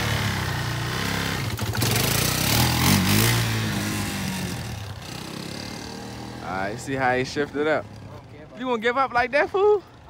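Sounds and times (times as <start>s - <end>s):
quad engine revving and shifting: 0.0s - 6.7s.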